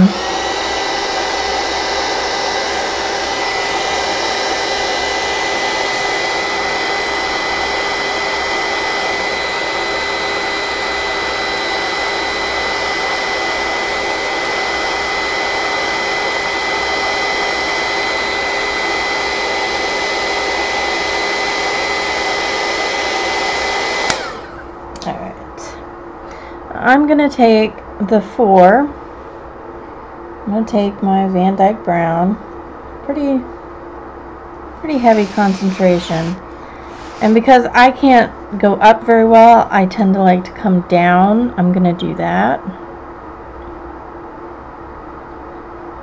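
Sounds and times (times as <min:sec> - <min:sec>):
heat gun blowing air: 0:00.0 - 0:24.7, 0:34.9 - 0:37.8.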